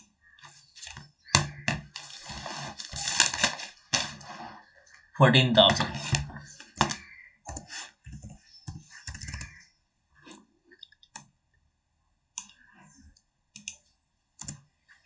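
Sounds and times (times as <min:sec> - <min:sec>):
keyboard key presses: 0:05.6 - 0:09.6
mouse clicks: 0:05.7 - 0:09.6.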